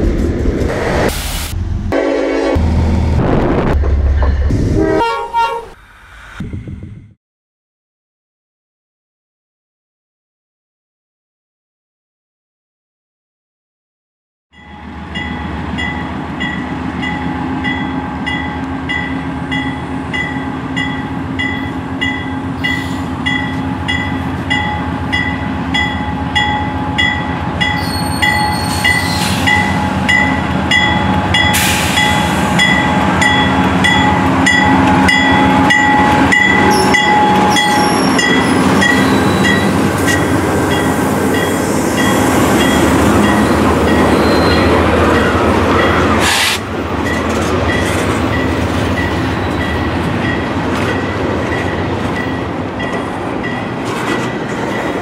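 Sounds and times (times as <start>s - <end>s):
locomotive engines rumbling: 0.0s - 6.5s, 14.8s - 55.0s
crossing bell dinging: 14.5s - 46.1s, 47.0s - 55.0s
train wheels on rails: 15.1s - 55.0s.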